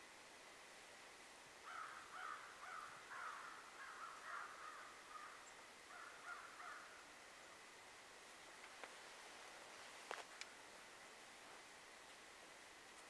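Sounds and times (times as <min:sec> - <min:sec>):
short rough bird calls: 0:01.6 - 0:07.0.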